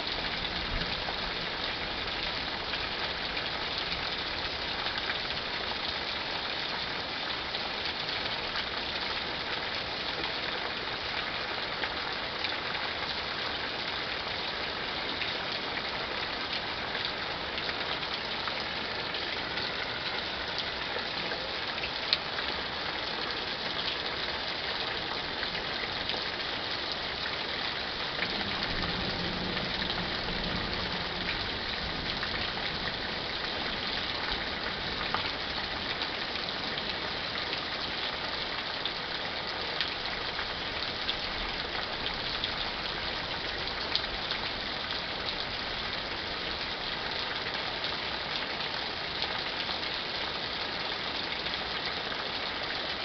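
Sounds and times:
heavy rain: 0.0s - 53.0s
low thunder rumble: 28.2s - 33.2s.

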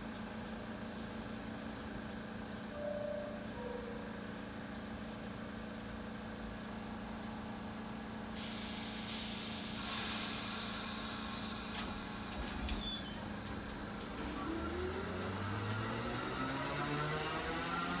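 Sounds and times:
train equipment hum: 0.2s - 16.3s
train air brakes hissing: 8.3s - 13.1s.

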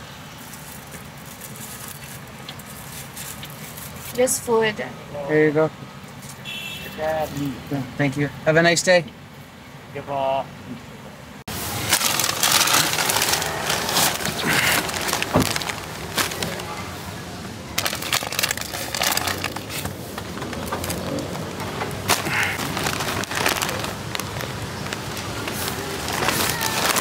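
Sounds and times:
paper bags crinkling: 0.4s - 4.2s, 11.5s - 17.0s, 17.8s - 27.0s.

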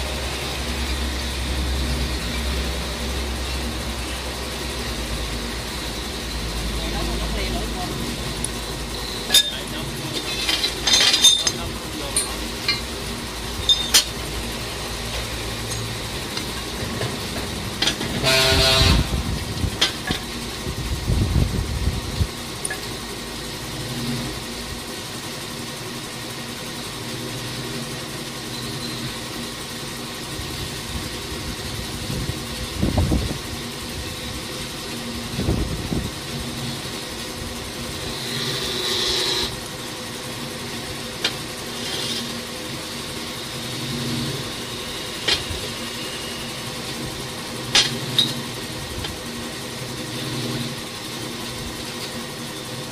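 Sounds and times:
metal clinks and knocks: 9.3s - 12.9s, 13.6s - 14.2s
short horn-like tone: 18.2s - 19.2s.

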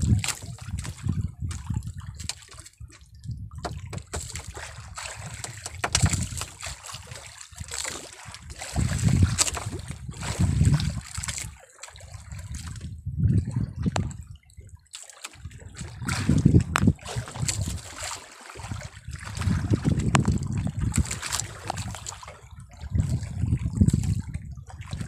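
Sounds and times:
water lapping against boat hull: 0.0s - 25.0s
sharp knocks: 3.6s - 4.6s, 5.2s - 6.5s.

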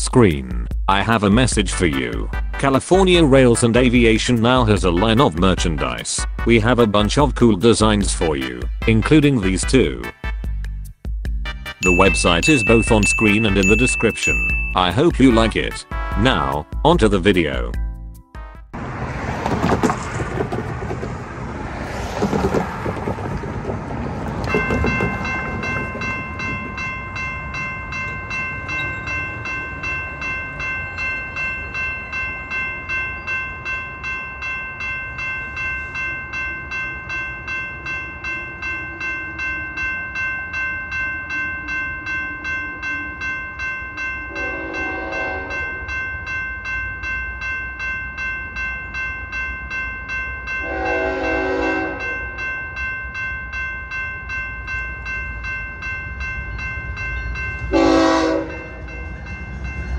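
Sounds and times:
crossing warning bell ringing: 0.0s - 10.3s, 11.6s - 19.4s, 23.3s - 59.9s
distant train horn: 15.9s - 16.6s, 44.3s - 45.8s, 50.6s - 52.4s, 57.6s - 59.1s.

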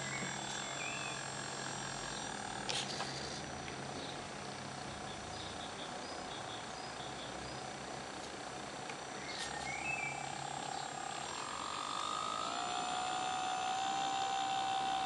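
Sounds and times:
hydraulic pump whine: 0.0s - 5.9s, 6.6s - 15.0s.

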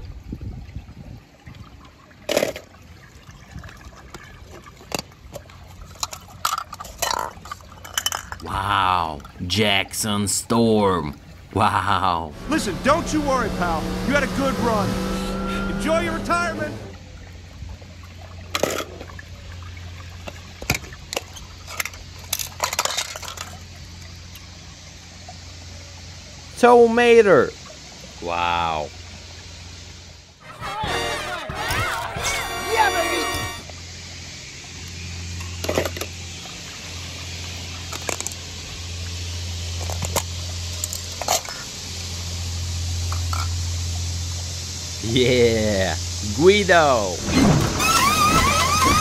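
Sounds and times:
water splashing and dripping: 0.0s - 8.4s
toy car splashing in water: 2.2s - 3.0s, 20.3s - 23.8s, 47.2s - 49.0s
steady low hum: 8.5s - 17.1s
toy cars clicking and clattering: 21.2s - 23.6s.

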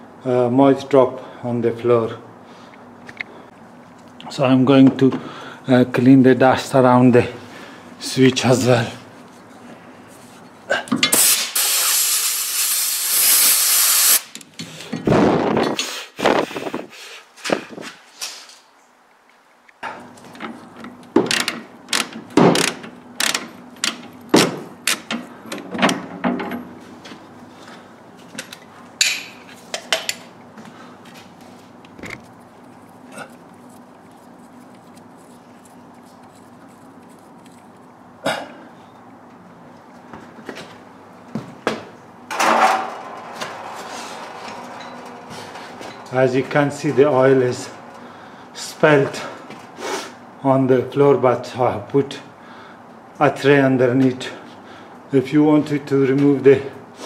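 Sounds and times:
pressurised air jet hissing: 11.2s - 14.3s
steady low hum: 19.8s - 57.0s.

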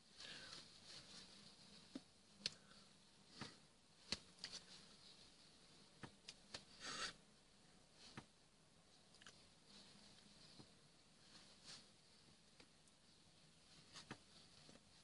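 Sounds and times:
sleeve rustle: 0.1s - 2.4s, 9.3s - 12.5s.

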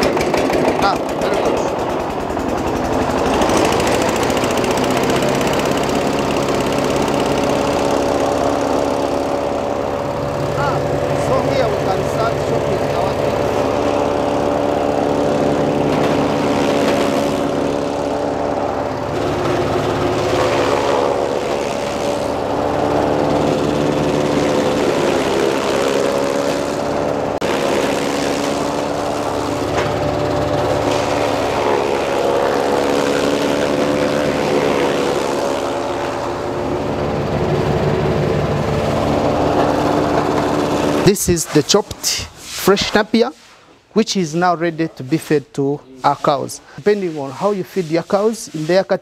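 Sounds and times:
chaff cutter chopping grass: 0.0s - 45.4s, 46.0s - 49.0s.

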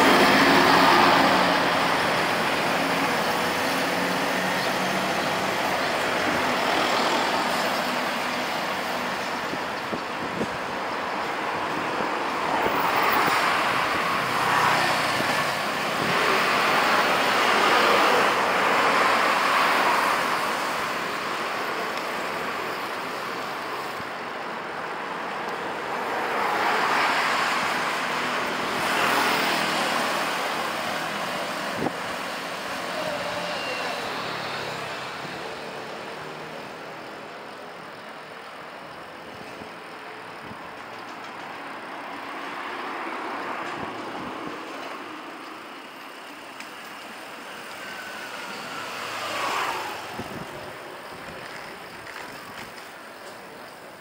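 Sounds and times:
passing vehicles: 0.0s - 54.0s.

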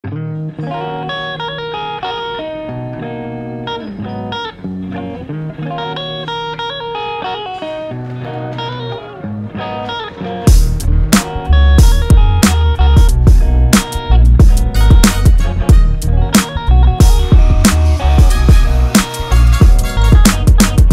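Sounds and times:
electric guitar melody: 0.0s - 20.9s
bass line: 10.5s - 20.9s.

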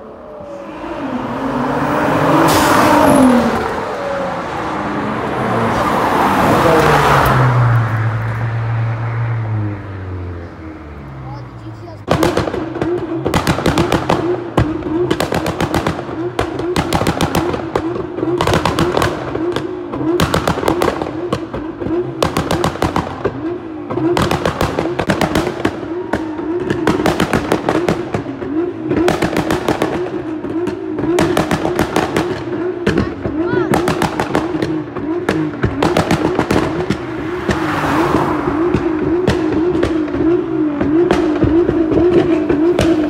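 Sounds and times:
car engines revving: 0.0s - 43.0s
exhaust pops and bangs: 12.0s - 43.0s.

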